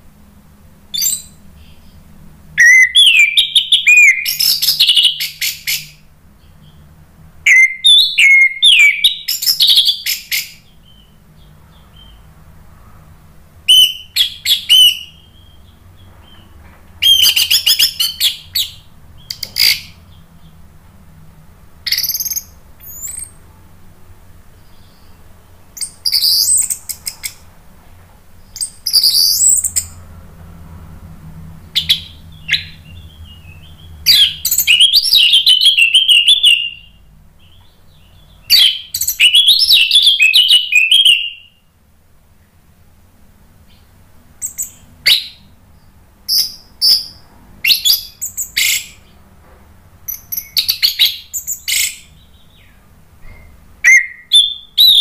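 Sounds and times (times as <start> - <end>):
thrush singing chirps and whistles: 0.9 - 12.3, 13.7 - 20.4, 21.9 - 23.4, 25.8 - 27.4, 28.4 - 30.0, 31.7 - 41.7, 44.4 - 49.1, 50.1 - 55.0.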